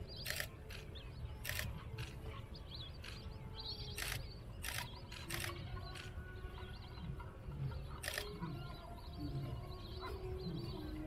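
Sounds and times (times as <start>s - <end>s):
faint high bird chirps: 0.0s - 11.0s
camera shutters firing: 0.2s - 2.2s, 3.9s - 6.1s, 8.0s - 8.3s.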